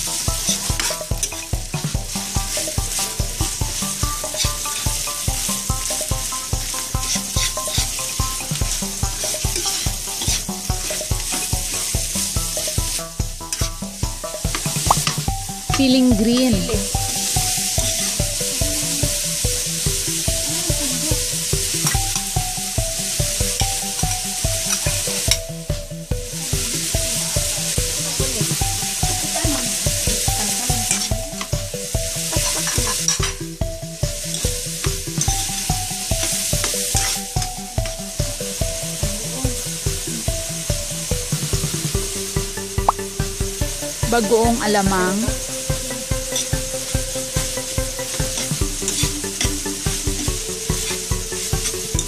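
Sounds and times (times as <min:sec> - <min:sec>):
metal spatula stirring in wok: 0:00.0 - 0:39.6, 0:45.3 - 0:52.0
background music with beat: 0:00.0 - 0:52.0
meat sizzling in hot oil: 0:00.0 - 0:52.0.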